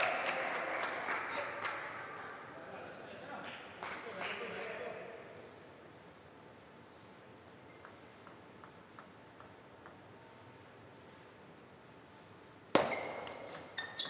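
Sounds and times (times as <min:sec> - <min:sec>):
table tennis ball bouncing: 0:07.7 - 0:10.2.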